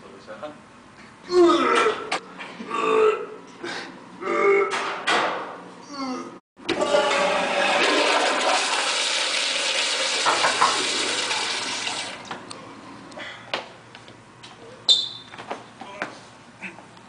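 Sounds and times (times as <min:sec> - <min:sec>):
toilet flushing: 0:06.7 - 0:12.3.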